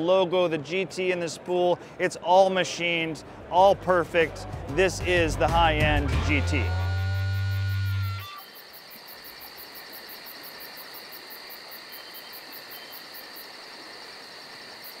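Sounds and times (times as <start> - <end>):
high-pitched insect drone: 6.7 - 13.6
crickets chirping: 7.1 - 15.0.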